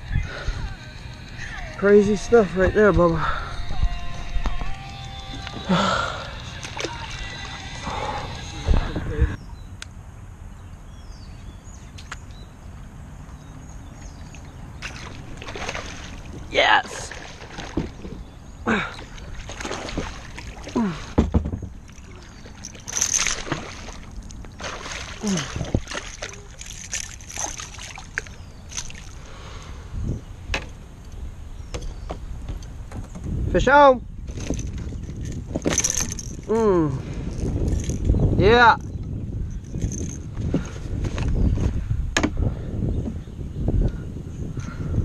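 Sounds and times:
water splashing and dripping: 0:06.6 - 0:07.4, 0:14.0 - 0:29.2
dull thump: 0:16.8 - 0:18.2, 0:21.1 - 0:21.8, 0:42.2 - 0:42.4.

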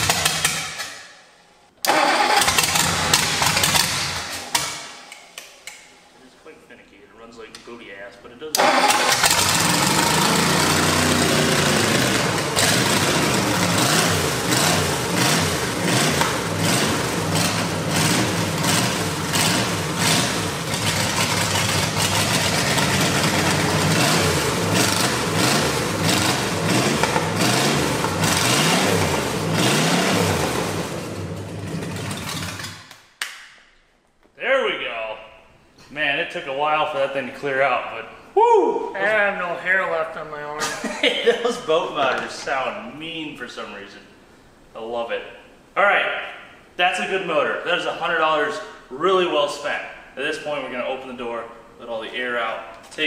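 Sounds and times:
engine revving: 0:01.8 - 0:04.6, 0:08.6 - 0:32.8
engine winding down: 0:01.8 - 0:04.7, 0:08.6 - 0:32.8.

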